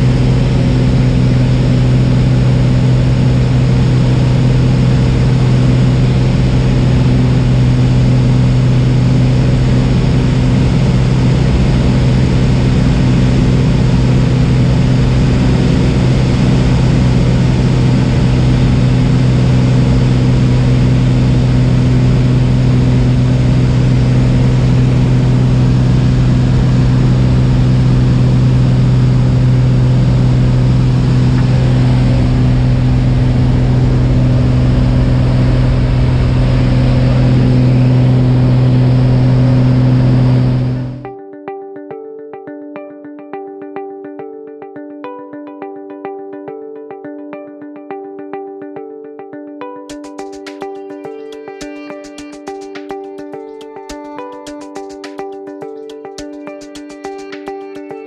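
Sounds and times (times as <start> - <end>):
light aircraft engine droning: 0.0 - 41.0.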